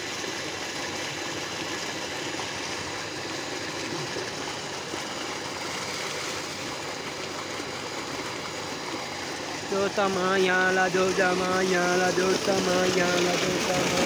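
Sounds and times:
water gushing into a tank: 0.0s - 14.0s.

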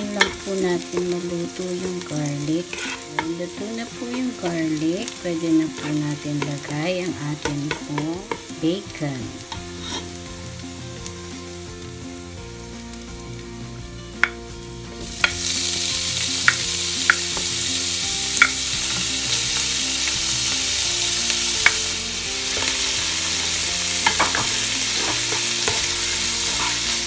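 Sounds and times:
food sizzling in oil: 0.0s - 27.0s
spoon scraping pot: 0.1s - 1.2s, 2.3s - 4.8s, 5.6s - 6.7s, 9.5s - 10.2s, 24.0s - 27.0s.

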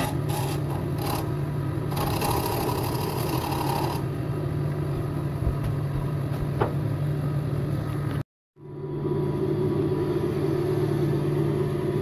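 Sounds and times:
gouge cutting spinning wood: 0.0s - 4.1s
wood lathe motor hum: 0.0s - 4.1s.

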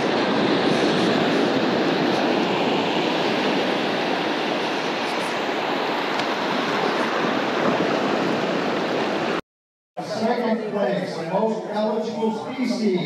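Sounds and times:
surf breaking waves: 0.0s - 9.4s.

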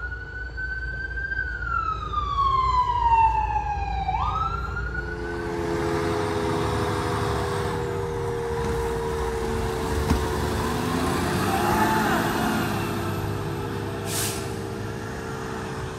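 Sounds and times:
diesel engine running: 5.4s - 15.9s.

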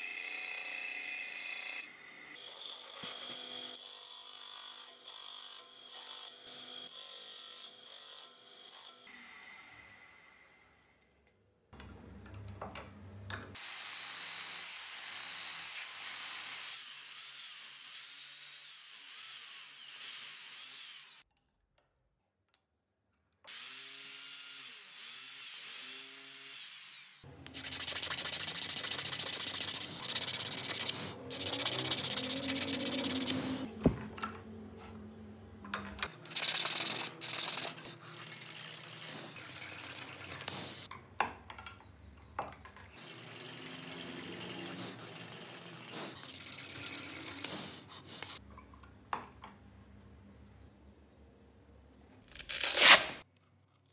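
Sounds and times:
disc sander grinding wood: 27.6s - 33.8s
wood rubbed and scraped by hand: 27.6s - 33.8s.

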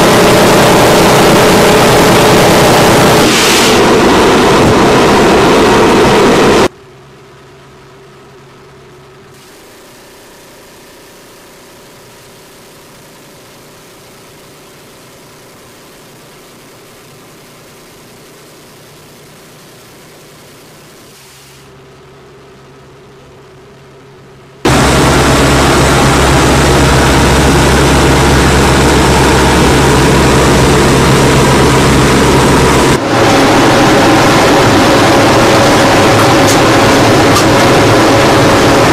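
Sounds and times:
loud rushing noise: 0.0s - 6.7s, 24.6s - 38.9s
mechanical drone: 0.0s - 38.9s.

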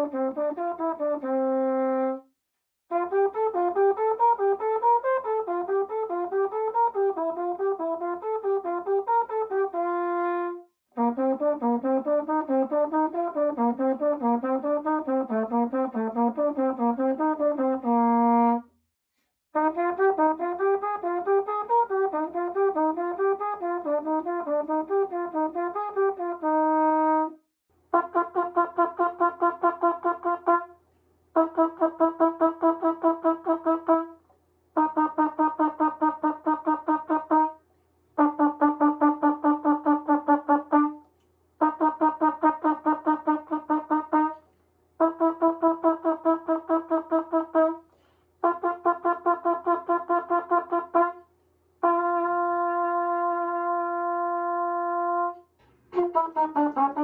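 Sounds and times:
mellophone playing: 56.0s - 57.0s.

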